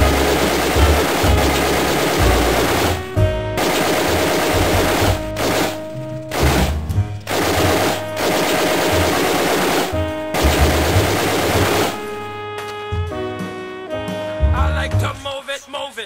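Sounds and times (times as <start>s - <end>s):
automatic gunfire: 0.0s - 12.1s.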